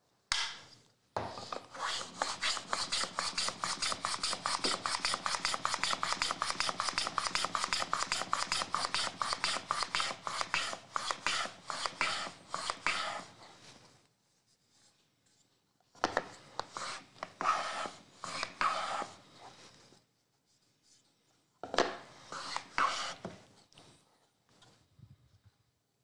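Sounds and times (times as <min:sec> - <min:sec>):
hand tool strokes on wood: 0:01.5 - 0:13.8, 0:16.5 - 0:19.9, 0:22.1 - 0:23.4.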